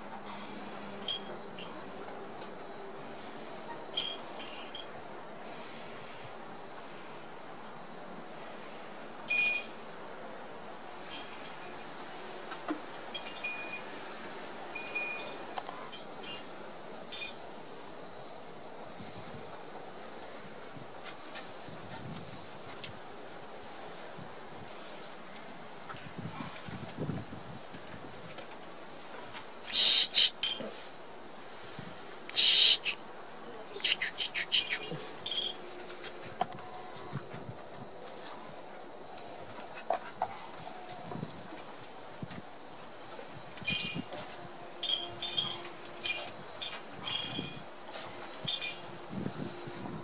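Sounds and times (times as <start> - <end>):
wind chime tinkling: 44.8 - 47.6, 48.4 - 48.9.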